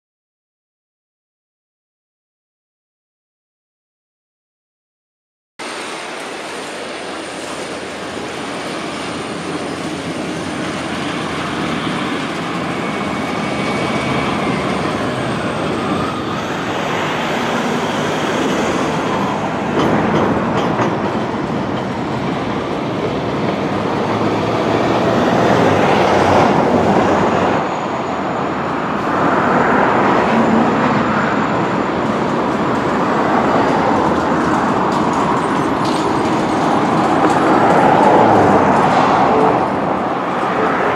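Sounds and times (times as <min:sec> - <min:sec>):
train wheels clattering on track: 0:05.7 - 0:28.0, 0:30.0 - 0:40.9
wheel squeal: 0:08.2 - 0:20.0.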